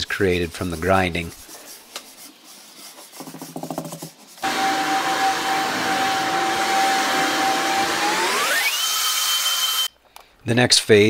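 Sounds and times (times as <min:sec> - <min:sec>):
leaf blower running: 0:04.4 - 0:09.9.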